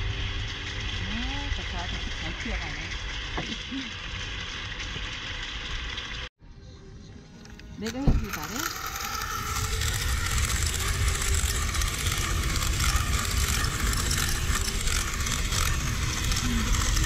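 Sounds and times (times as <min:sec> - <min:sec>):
electric blower rushing air: 0:00.0 - 0:06.0, 0:07.8 - 0:17.0
coals crackling: 0:08.3 - 0:17.0.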